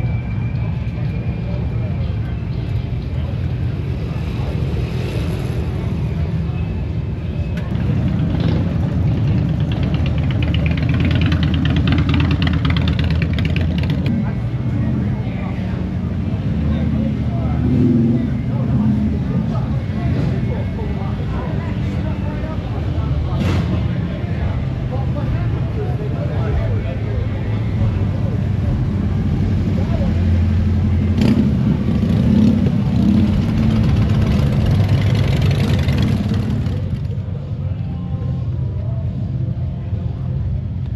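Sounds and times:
motorcycle engine running: 0:07.7 - 0:14.7, 0:27.8 - 0:37.6.

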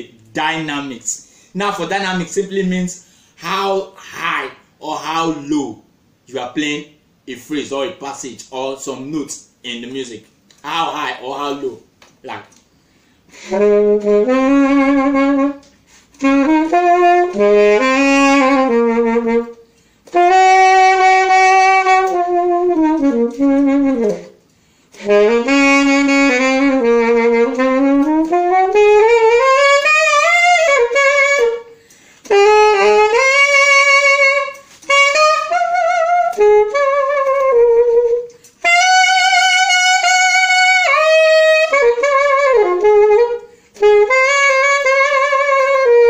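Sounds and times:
alto saxophone playing phrases: 0:09.4 - 0:46.0.

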